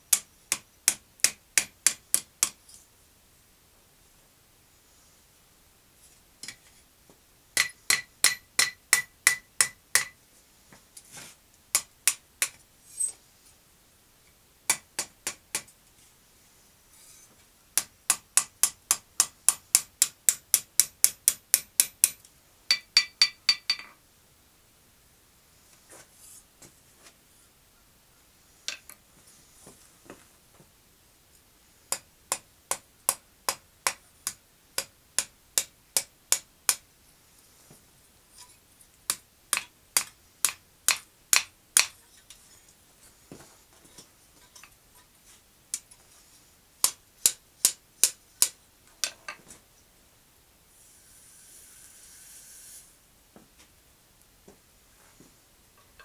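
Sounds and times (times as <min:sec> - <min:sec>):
short hiss: 0:50.7 - 0:53.0.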